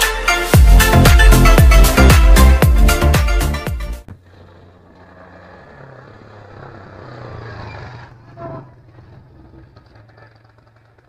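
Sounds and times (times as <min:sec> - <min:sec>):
small motorcycle engine passing: 0:04.0 - 0:11.0.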